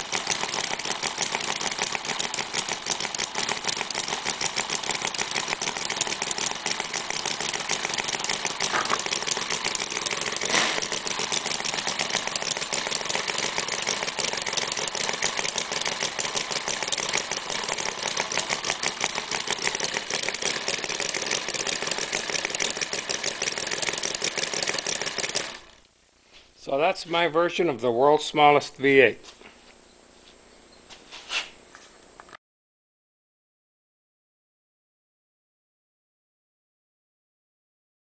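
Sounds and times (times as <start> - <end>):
model engine running: 0.0 - 25.9.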